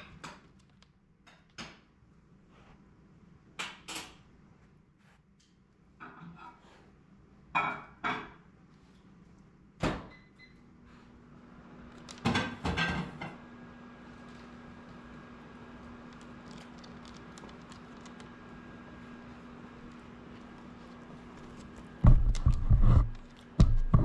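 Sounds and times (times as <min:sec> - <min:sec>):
steady appliance hum: 0:00.0 - 0:24.0
household knocks and thumps: 0:22.0 - 0:24.0.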